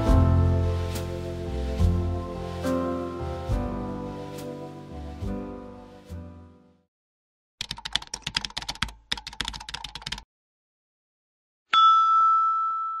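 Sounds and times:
music: 0:00.0 - 0:06.9
ringing bell-like chime: 0:11.7 - 0:13.0.

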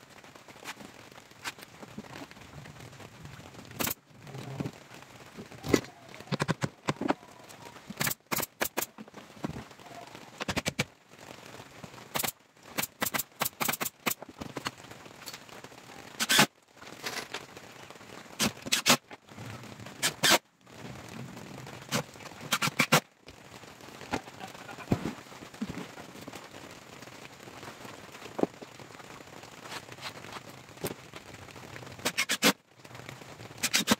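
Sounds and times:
nail gun firing: 0:08.0 - 0:08.9, 0:12.2 - 0:14.2, 0:22.5 - 0:23.0, 0:32.1 - 0:32.5, 0:33.6 - 0:33.9.

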